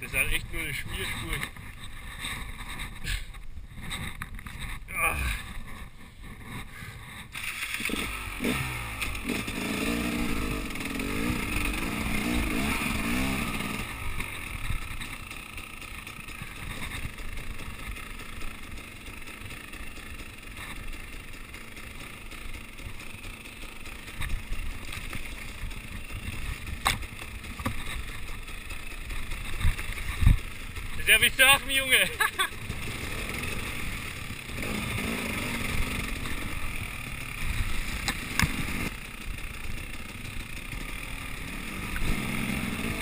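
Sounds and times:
motorcycle engine revving: 0.0s - 43.0s.

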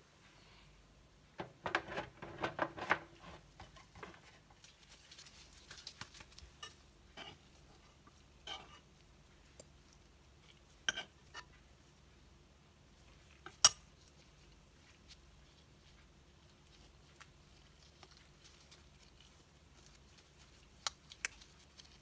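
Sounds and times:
light taps and clicks handling dough: 1.4s - 11.8s, 13.0s - 22.0s.

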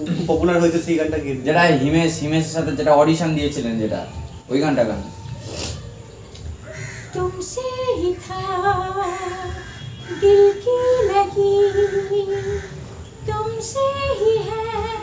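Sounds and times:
woman singing unaccompanied: 5.8s - 15.0s.

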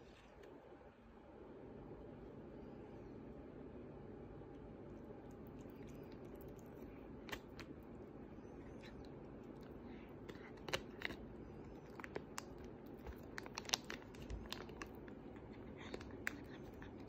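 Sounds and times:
cat chewing: 4.4s - 17.0s.

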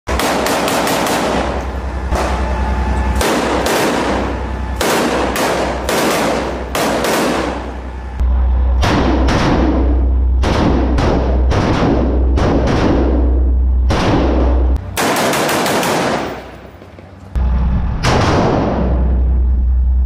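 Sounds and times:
rifle shots echoing: 0.1s - 2.6s, 3.2s - 7.8s, 13.9s - 16.9s.

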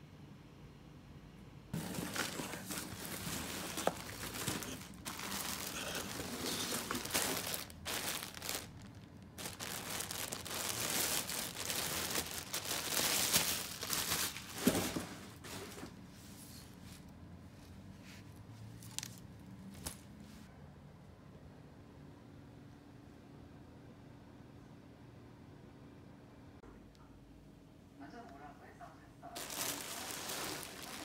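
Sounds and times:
plastic bag crinkling: 1.8s - 15.1s, 29.4s - 31.0s.

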